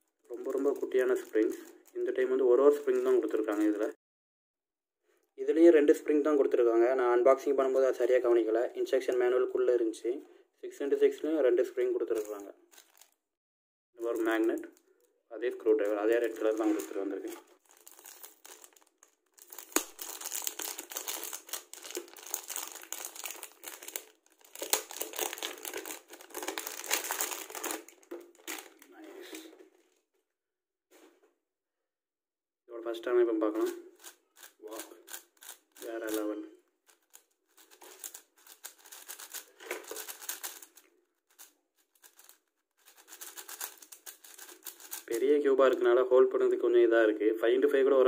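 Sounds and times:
plastic bag crinkling: 0.0 - 3.9, 12.1 - 13.2, 15.7 - 30.1, 33.9 - 45.7
speed cube clicking and rattling: 34.0 - 36.2, 36.9 - 45.1.

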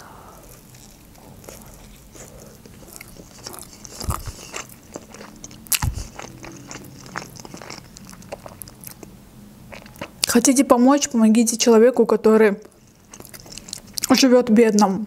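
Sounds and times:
wet chewing mouth sounds: 0.3 - 9.1, 9.7 - 10.4, 12.6 - 14.2.

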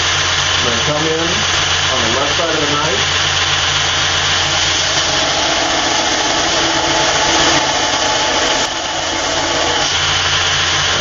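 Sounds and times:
belt grinder grinding metal: 0.0 - 11.0
motor hum: 0.0 - 11.0.

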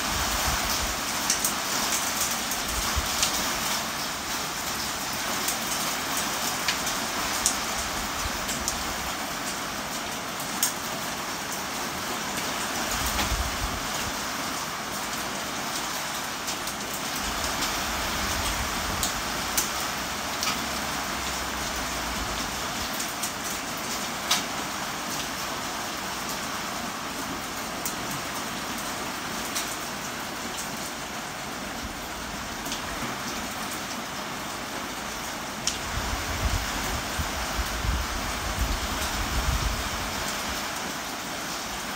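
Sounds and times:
heavy rain: 0.0 - 41.9
sharp drips and splats: 16.0 - 25.5.

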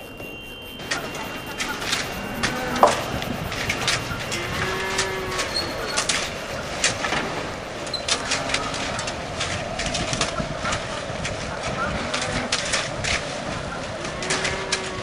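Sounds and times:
hand tools knocking: 0.0 - 10.4
cattle lowing: 0.0 - 15.0
work ambience: 0.0 - 15.0.

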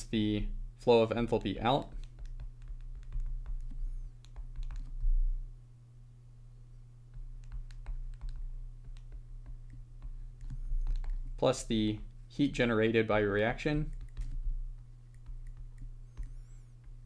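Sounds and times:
steady low hum: 0.0 - 17.0
stylus clicking on glass screen: 13.8 - 17.0.

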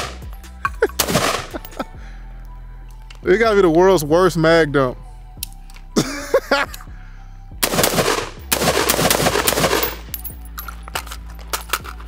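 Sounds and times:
pistol firing rapid shots: 1.0 - 1.7, 7.6 - 10.1.

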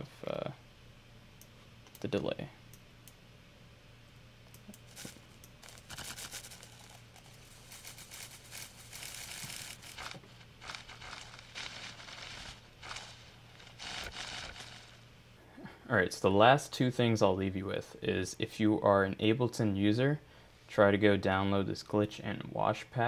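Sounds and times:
glitchy crinkly paper bursts: 4.9 - 15.1.

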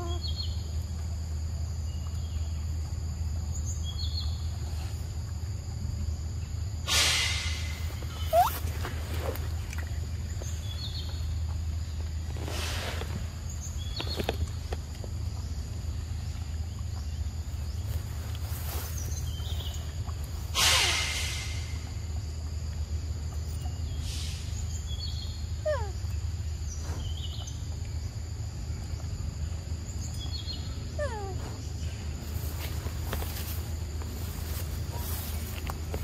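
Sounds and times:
short loud hissing: 6.8 - 8.9, 12.4 - 13.3, 20.5 - 21.8, 24.0 - 24.8
bird calls: 7.0 - 12.0
steady low rumble: 21.2 - 36.0.

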